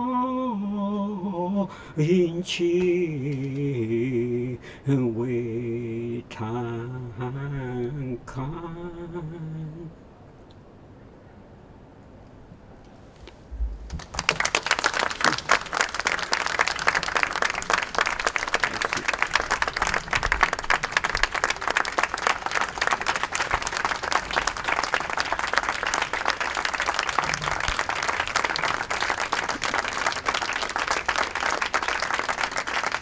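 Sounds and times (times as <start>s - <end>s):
audience applauding: 13.9s - 33.0s.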